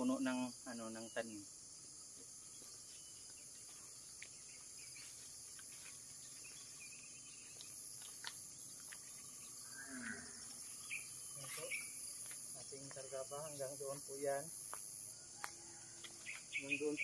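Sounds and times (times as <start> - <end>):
insects chirping: 0.0 - 17.0
footsteps on dry grass: 2.5 - 13.6.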